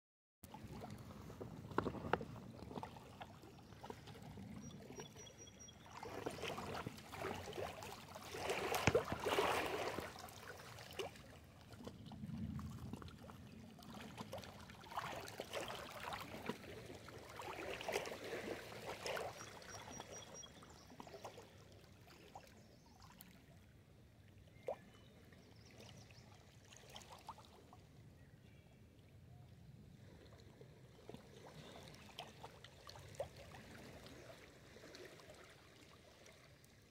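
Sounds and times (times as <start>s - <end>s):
waves lapping against rocks: 0.6s - 21.4s, 30.0s - 36.8s.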